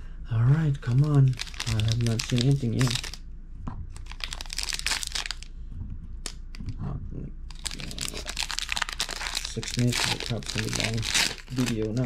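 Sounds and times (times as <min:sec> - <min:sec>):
foil wrapper crinkling: 0:00.8 - 0:03.2, 0:04.0 - 0:05.5, 0:07.5 - 0:12.0.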